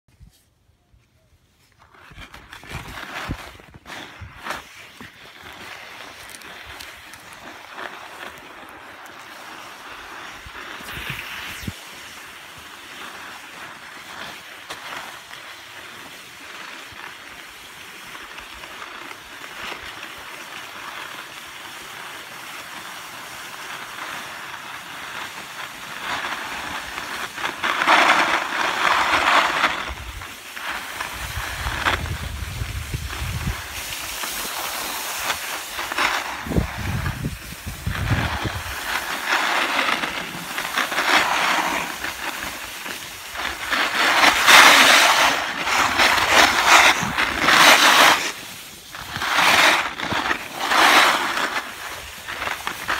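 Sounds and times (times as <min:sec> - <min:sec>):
skis scraping on snow: 0:00.1 - 0:52.9.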